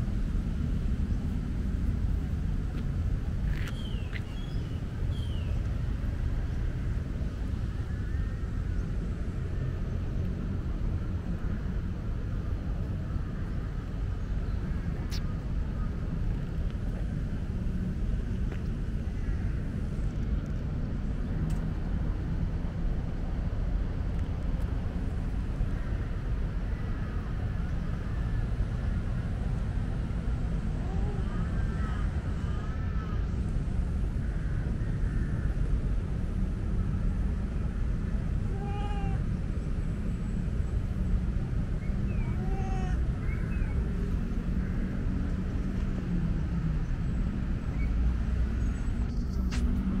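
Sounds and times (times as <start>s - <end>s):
low outdoor rumble: 0.0s - 50.0s
cat meowing: 38.5s - 39.2s, 42.2s - 43.0s.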